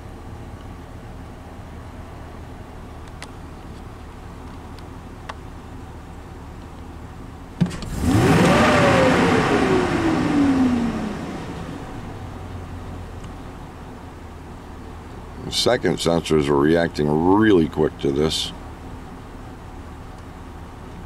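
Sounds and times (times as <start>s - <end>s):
truck engine idling and revving: 0.0s - 21.0s.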